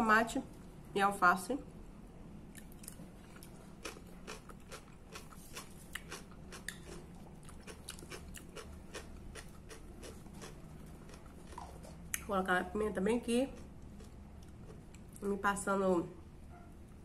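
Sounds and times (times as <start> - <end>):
chewing crunchy salad: 2.4 - 15.4.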